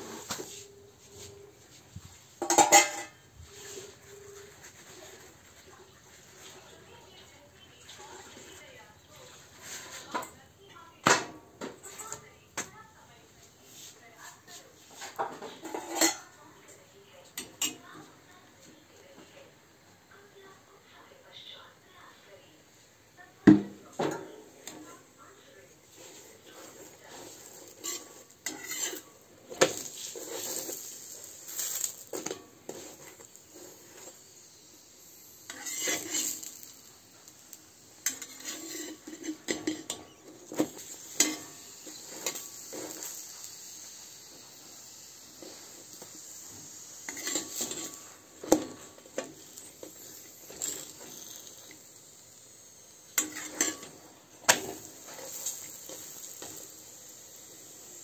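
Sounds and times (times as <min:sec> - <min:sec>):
metal spatula scraping griddle: 0:00.0 - 0:01.5, 0:02.4 - 0:06.6, 0:09.2 - 0:10.4, 0:13.7 - 0:16.4, 0:17.4 - 0:18.0, 0:25.9 - 0:51.9, 0:52.7 - 0:58.0.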